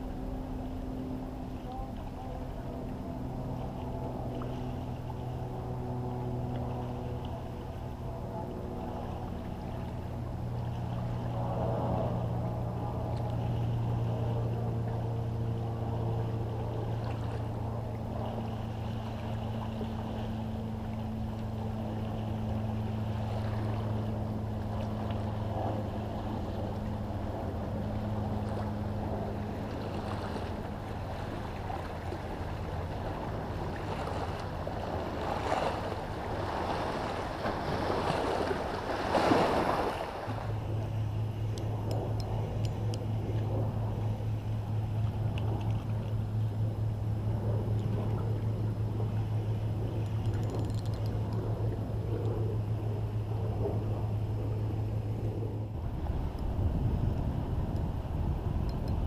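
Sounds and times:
boat engine humming: 0:00.0 - 0:59.0
waves splashing against rocks: 0:31.2 - 0:40.5.

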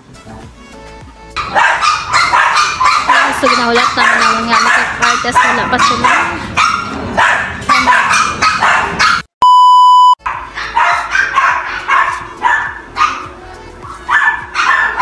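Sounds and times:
dog barking: 0:01.4 - 0:09.3, 0:10.2 - 0:15.0
high test-tone beep: 0:09.4 - 0:10.2.

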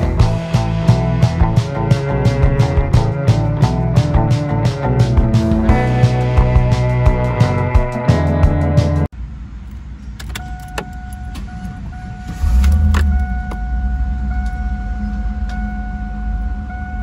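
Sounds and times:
car engine starting and idling: 0:00.0 - 0:17.0
electronic warning chime: 0:10.4 - 0:17.0.

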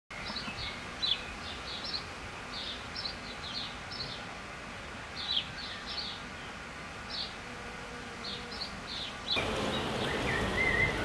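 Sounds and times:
songbird chirping: 0:00.1 - 0:04.3, 0:08.2 - 0:11.0
outdoor background hiss: 0:00.1 - 0:11.0.

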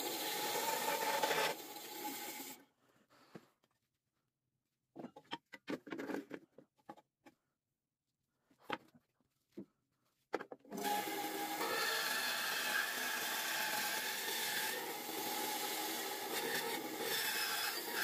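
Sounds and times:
bandsaw running: 0:10.8 - 0:18.0.

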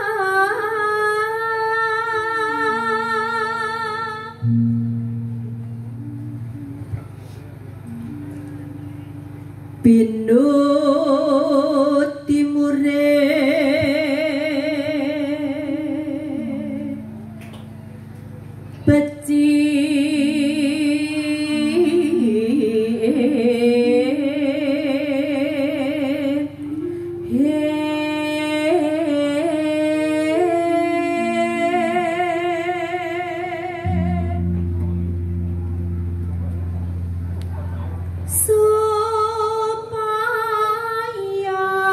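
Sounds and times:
woman singing with vibrato: 0:00.0 - 0:07.2, 0:09.7 - 0:17.3, 0:18.8 - 0:35.0, 0:38.3 - 0:41.9
sustained keyboard chords: 0:02.1 - 0:41.9.

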